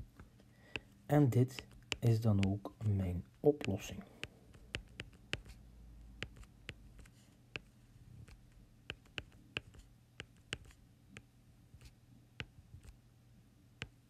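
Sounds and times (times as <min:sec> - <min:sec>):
faint low hum: 0:00.0 - 0:14.0
stylus tapping on tablet screen: 0:00.7 - 0:02.8, 0:03.5 - 0:05.6, 0:06.2 - 0:13.0.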